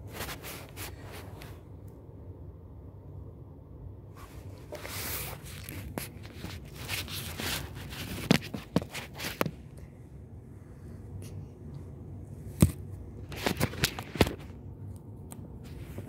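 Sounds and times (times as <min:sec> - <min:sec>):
fabric rustling: 0:00.0 - 0:01.6, 0:04.2 - 0:09.6
handling noise on microphone: 0:00.0 - 0:01.6, 0:04.2 - 0:09.8, 0:12.4 - 0:14.6.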